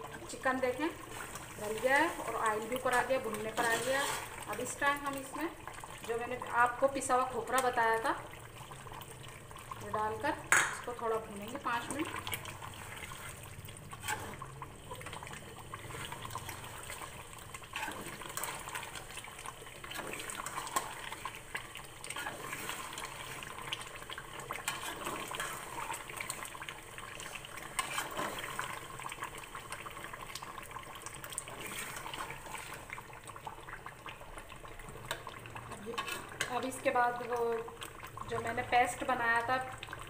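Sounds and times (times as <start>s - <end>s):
curry bubbling and sizzling in pot: 0.0s - 40.0s
metal spoon scraping a pot: 2.9s - 4.4s, 12.9s - 14.5s, 17.6s - 19.0s, 24.6s - 25.8s, 27.7s - 28.6s, 35.8s - 36.6s.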